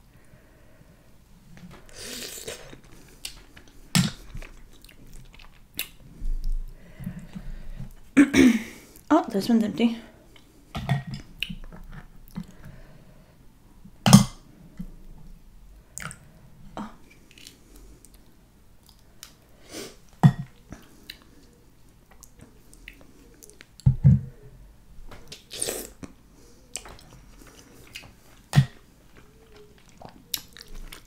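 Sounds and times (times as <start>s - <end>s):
chewing: 1.6s - 8.0s, 17.3s - 19.4s, 20.1s - 23.9s, 25.3s - 31.0s.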